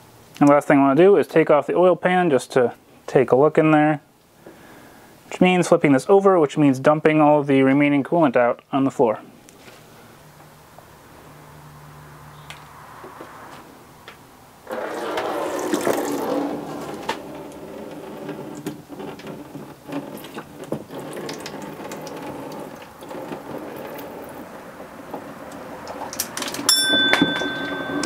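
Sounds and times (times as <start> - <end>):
coolant pouring into drain pan: 14.7 - 26.7.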